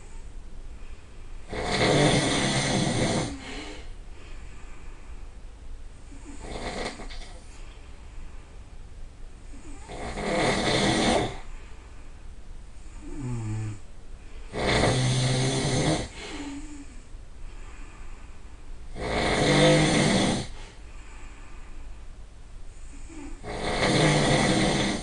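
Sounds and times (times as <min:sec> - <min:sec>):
soft pitched breath: 0:00.0 - 0:01.5, 0:02.4 - 0:06.4, 0:07.1 - 0:08.8, 0:11.3 - 0:14.6, 0:16.0 - 0:18.8, 0:20.0 - 0:23.4
person snoring: 0:01.5 - 0:03.9, 0:06.2 - 0:07.4, 0:09.5 - 0:11.5, 0:12.9 - 0:13.8, 0:14.5 - 0:17.0, 0:18.9 - 0:20.8, 0:22.9 - 0:25.0.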